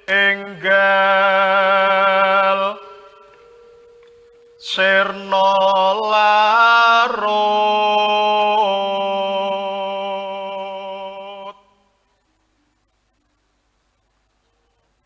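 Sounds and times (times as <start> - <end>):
person singing a long note: 0.0 - 11.8.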